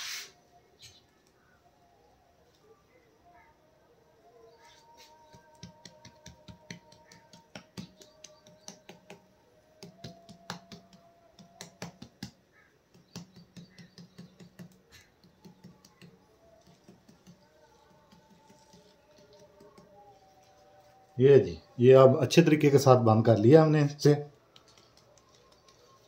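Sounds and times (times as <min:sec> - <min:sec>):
hands tapping dough on clay pot: 0:05.2 - 0:20.1.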